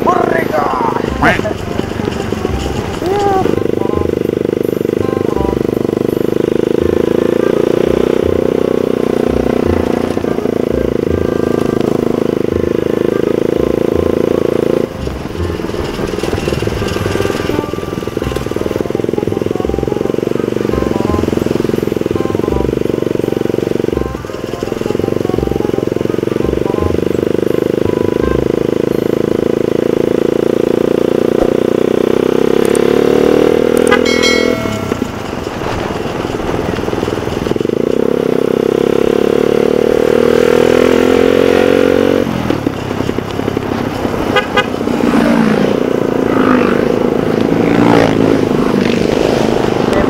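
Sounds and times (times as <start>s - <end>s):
motorcycle engine accelerating: 0.0s - 50.0s
vehicle horn toot: 33.8s - 35.2s, 44.2s - 45.0s.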